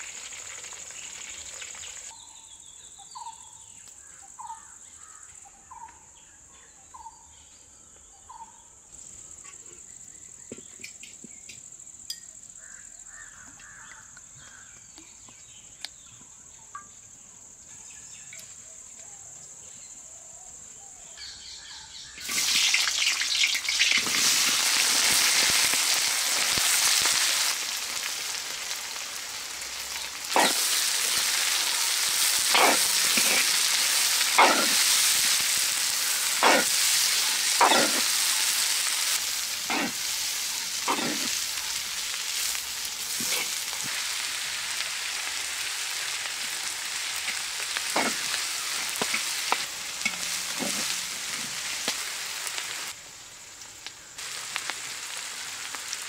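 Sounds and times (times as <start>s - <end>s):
onions sizzling in hot oil: 0.0s - 2.2s, 22.0s - 56.0s
ladle scraping wok: 30.3s - 41.5s, 42.4s - 43.8s, 47.3s - 52.0s.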